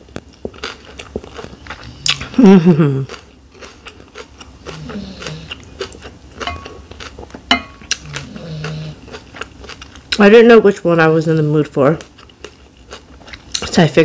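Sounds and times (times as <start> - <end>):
chewing and mouth clicks: 0.1 - 10.3, 12.0 - 13.8
person humming mmm: 2.0 - 3.2, 4.7 - 5.6, 7.9 - 9.1.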